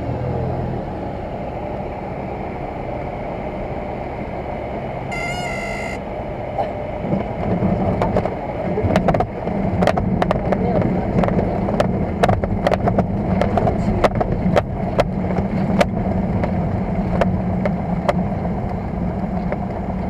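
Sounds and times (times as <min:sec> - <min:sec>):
light aircraft engine: 0:00.0 - 0:20.0
stall warning horn: 0:05.1 - 0:06.1.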